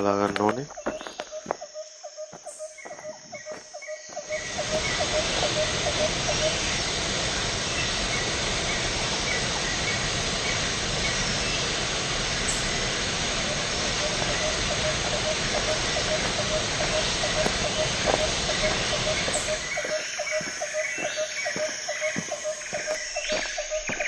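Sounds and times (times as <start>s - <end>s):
footsteps through tall grass: 0.0s - 5.4s, 14.0s - 24.0s
rapid repeating chirp: 0.0s - 6.9s, 13.4s - 24.0s
waterfall rushing over rocks: 4.3s - 20.6s.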